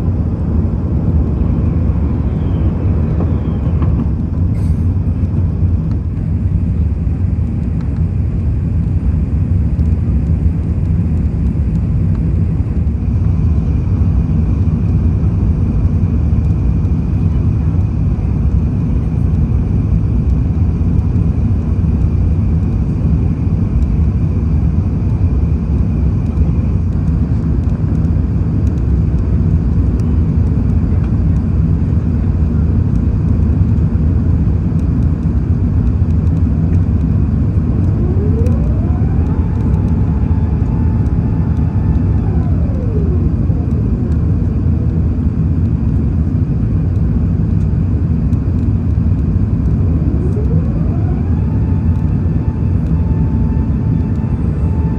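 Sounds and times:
airplane cabin engine roar: 0.0s - 54.9s
faint high whine: 36.5s - 46.5s, 47.9s - 54.9s.

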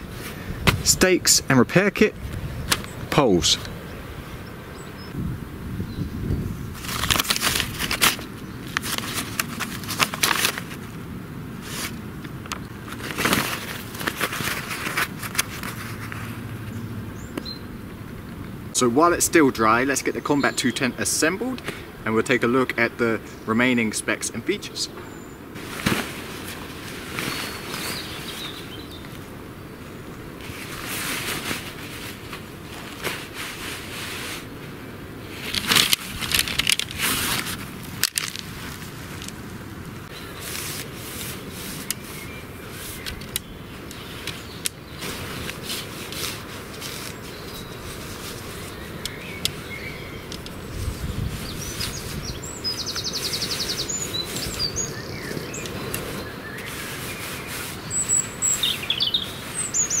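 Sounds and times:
small birds chirping: 2.4s - 6.7s, 16.6s - 18.6s, 22.4s - 32.1s, 40.0s - 60.0s
tent fabric rustling: 6.6s - 11.0s, 11.6s - 16.8s, 25.5s - 29.4s, 30.2s - 60.0s.

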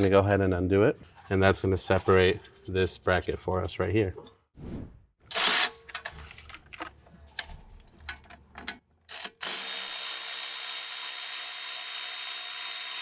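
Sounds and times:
cordless ratchet motor whine: 9.2s - 13.0s.

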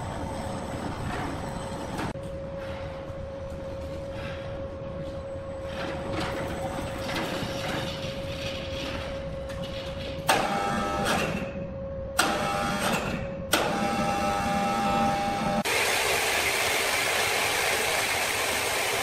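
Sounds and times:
machinery hum: 0.0s - 19.0s.

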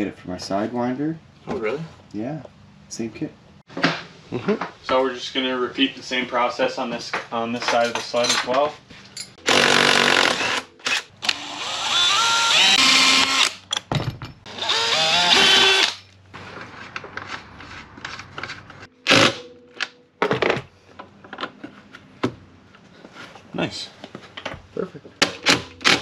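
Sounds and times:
cordless drill whirring: 9.5s - 13.6s, 14.5s - 16.0s.

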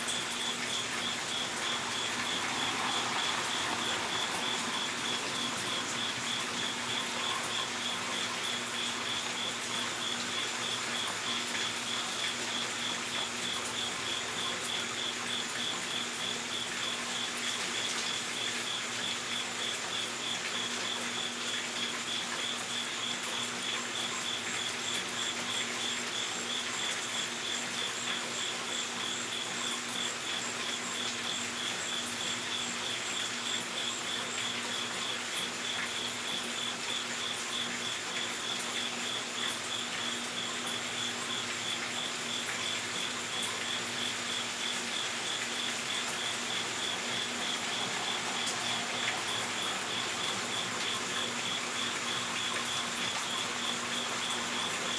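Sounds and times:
background hiss: 0.0s - 9.2s
insect chirping: 0.1s - 11.4s.

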